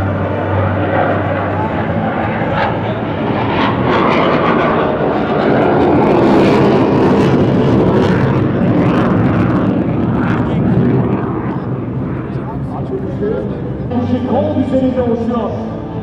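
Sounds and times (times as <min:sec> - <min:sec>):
aircraft engine rushing: 0:00.0 - 0:16.0
low hum: 0:00.0 - 0:16.0.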